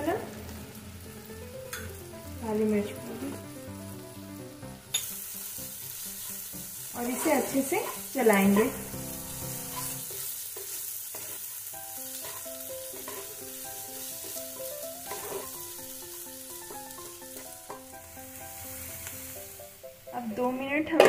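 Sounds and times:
food sizzling in a pan: 0.0 - 21.0
wooden spatula scraping a pan: 6.2 - 8.9, 9.6 - 13.4, 14.0 - 15.6.

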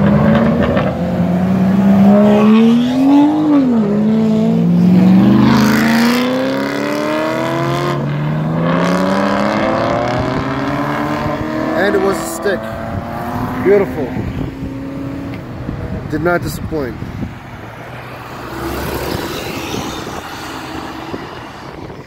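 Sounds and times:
car engine accelerating hard: 0.0 - 16.1.

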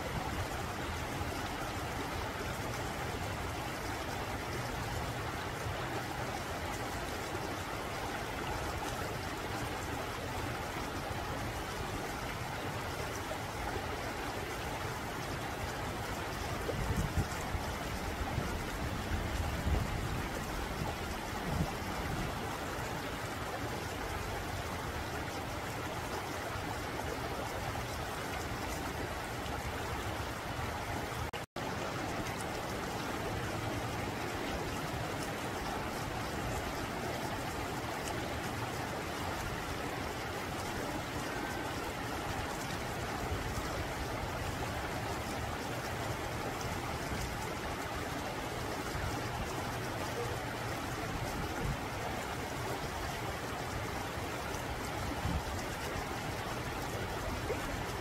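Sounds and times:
stream flowing over rocks: 0.0 - 58.0.

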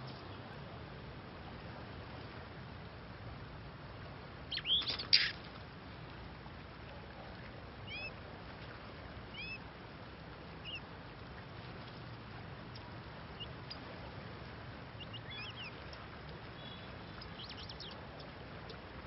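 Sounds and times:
magpie-robins calling: 4.5 - 5.3.

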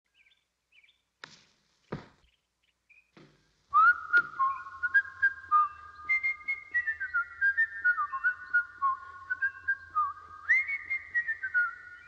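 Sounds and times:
short knocks: 3.1 - 4.4
whistled tune: 3.7 - 12.0.

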